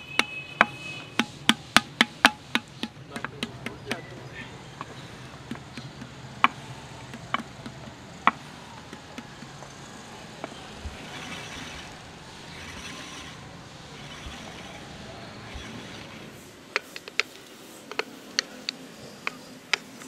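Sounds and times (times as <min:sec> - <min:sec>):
wooden paddle tapping clay pot: 0:00.0 - 0:04.2, 0:04.8 - 0:09.7.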